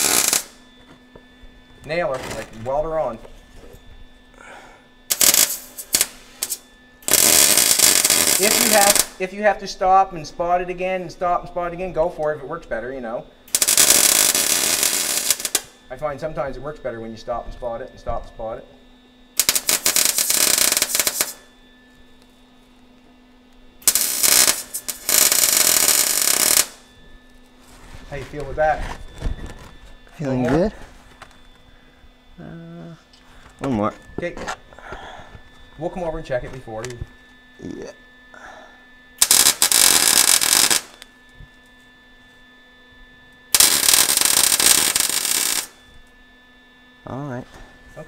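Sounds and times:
welder arc crackling: 0.0 - 0.6, 5.1 - 9.4, 13.5 - 16.0, 19.4 - 21.5, 23.5 - 26.9, 39.2 - 41.2, 43.5 - 45.8
faint steady hum: 0.0 - 48.0.

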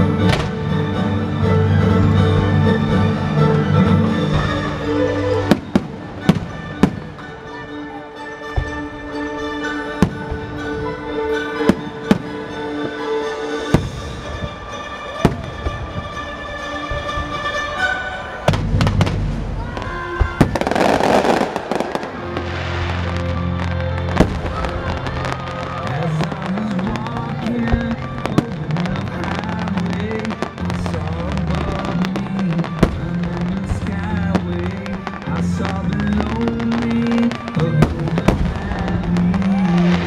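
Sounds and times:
music playing: 0.0 - 40.0
fireworks bursting with bangs: 0.2 - 0.7, 4.1 - 7.7, 8.5 - 17.7, 18.5 - 40.0.

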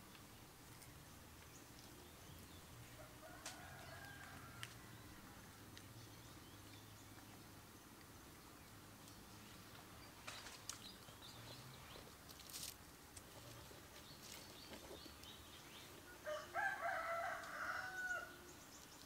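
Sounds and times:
rooster crowing: 3.0 - 5.3, 16.2 - 18.5.

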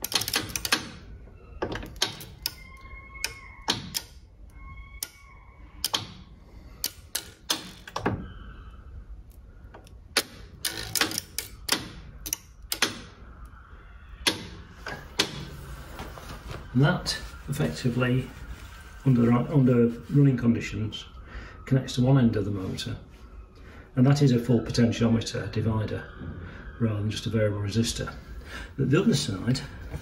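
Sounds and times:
switch contacts clicking: 5.8 - 6.2, 9.8 - 13.6
faint whine: 7.9 - 10.0, 11.5 - 30.0.

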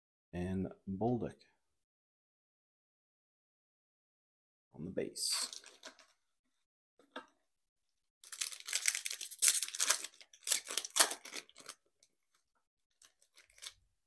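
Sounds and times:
foil wrapper crinkling and tearing: 8.2 - 13.8.

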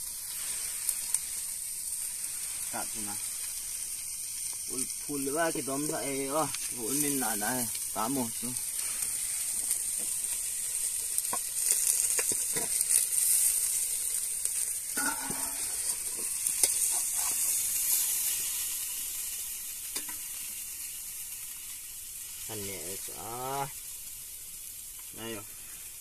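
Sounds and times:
food sizzling hiss: 0.0 - 26.0
ladle scraping metal pot: 15.0 - 17.5.

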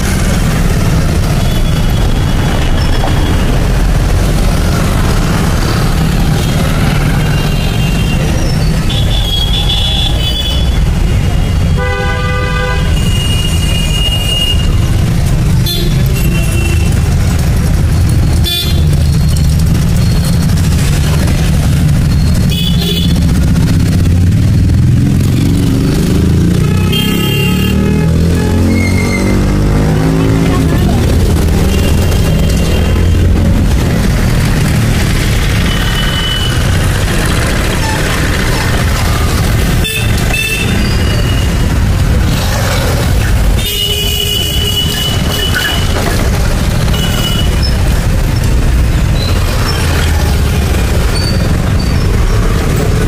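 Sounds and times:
traffic rumble: 0.0 - 53.0
vehicle horns honking: 11.5 - 17.1, 22.4 - 23.4, 26.6 - 30.2, 35.5 - 36.9, 39.4 - 41.6, 43.5 - 46.1, 46.8 - 47.8.

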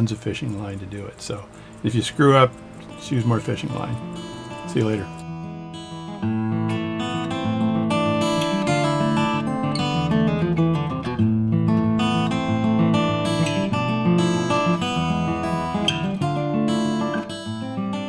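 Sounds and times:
strummed acoustic guitar: 0.0 - 18.0.

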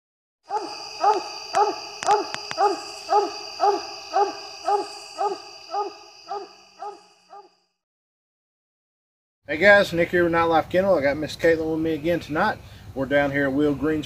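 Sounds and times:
dog barking: 0.5 - 7.5.

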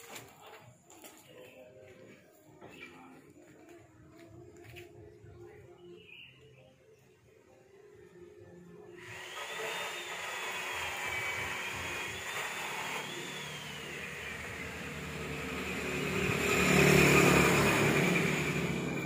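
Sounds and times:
motor whining: 9.0 - 19.0.

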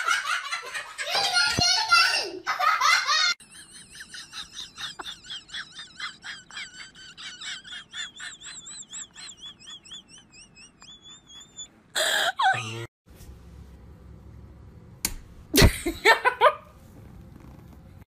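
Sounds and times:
child laughing loudly: 0.0 - 12.9.

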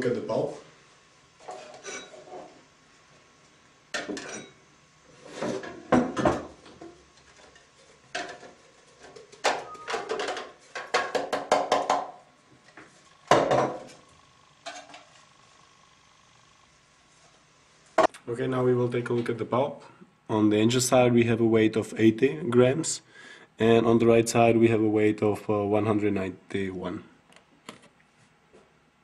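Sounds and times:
containers clattering on countertop: 8.1 - 12.2.

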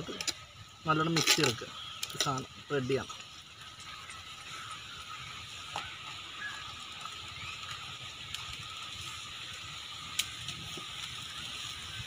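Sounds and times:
sharp pops from fire: 0.0 - 2.5, 5.6 - 11.4
high-pitched hiss: 0.0 - 12.0
wood fire crackling: 0.0 - 12.0.

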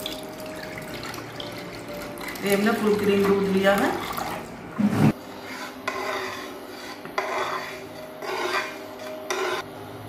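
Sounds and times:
metal spatula scraping a pan: 4.9 - 9.7.

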